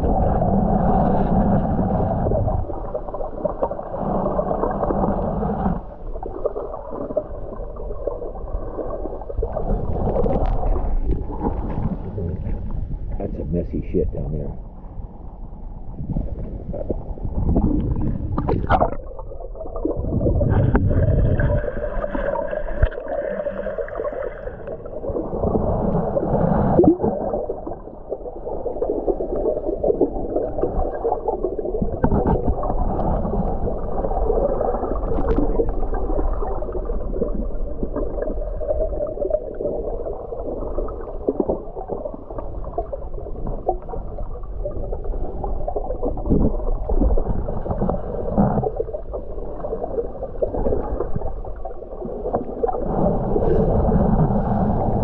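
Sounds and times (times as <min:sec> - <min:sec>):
muffled underwater gurgling: 0:15.8 - 0:55.0.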